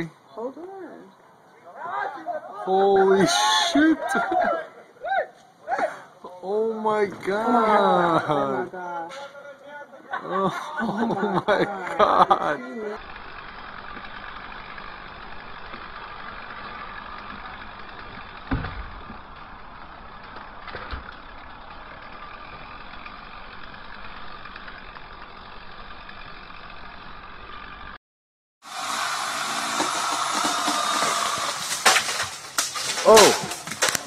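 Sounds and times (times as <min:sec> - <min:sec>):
chainsaw running: 0:10.2 - 0:28.0, 0:28.6 - 0:34.0.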